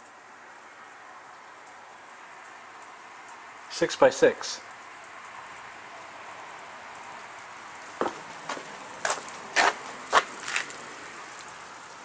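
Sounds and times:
outdoor hiss: 0:00.0 - 0:12.0
scuffing crunches: 0:08.0 - 0:10.8.

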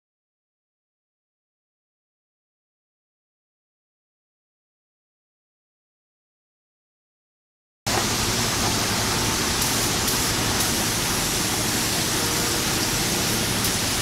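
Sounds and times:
factory workshop rushing noise: 0:07.9 - 0:14.0.

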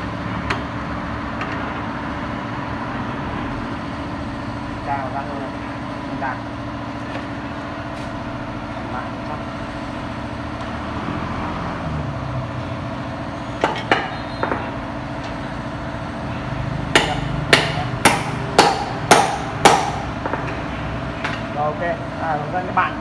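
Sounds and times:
machine hum: 0:00.0 - 0:23.0
sharp metallic knocks: 0:13.6 - 0:14.9, 0:16.8 - 0:21.6.

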